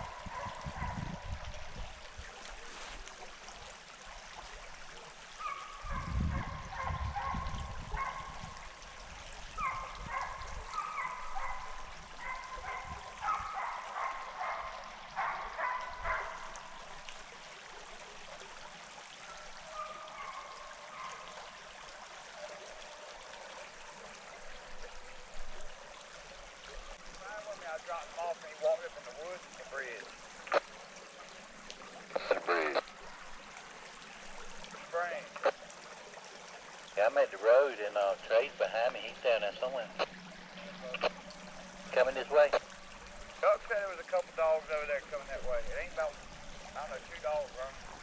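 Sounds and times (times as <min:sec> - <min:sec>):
hounds baying in the distance: 0:00.0 - 0:03.4, 0:04.9 - 0:35.5
creek water running: 0:00.0 - 0:48.0.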